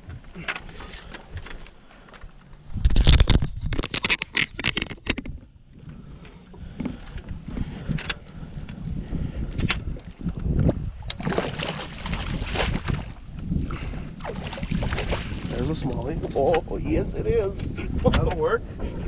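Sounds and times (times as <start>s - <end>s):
scrapes and clicks: 0.4s - 5.4s.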